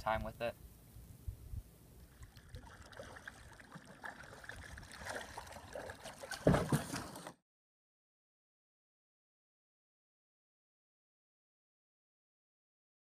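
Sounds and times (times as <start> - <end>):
water dripping off paddle: 2.0 - 7.3
paddle blades dipping in water: 2.0 - 7.4
loud thump: 6.4 - 7.1.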